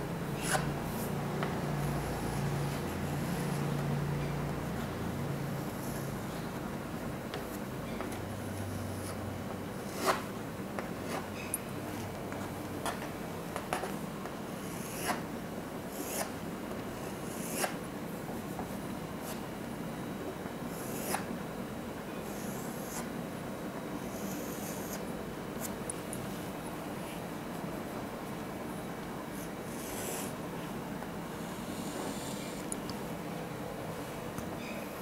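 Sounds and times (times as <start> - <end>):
chalk scratching strokes: 29.3 - 30.4, 31.4 - 32.7.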